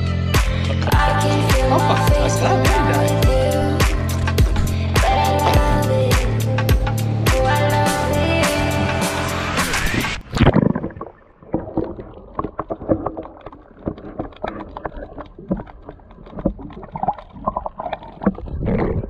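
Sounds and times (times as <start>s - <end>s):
underwater gurgling and rumble: 0.0s - 7.0s, 9.7s - 19.0s
background music: 0.0s - 10.2s
underwater clicks and knocks: 3.9s - 5.6s, 10.3s - 19.0s
splash: 9.7s - 19.0s.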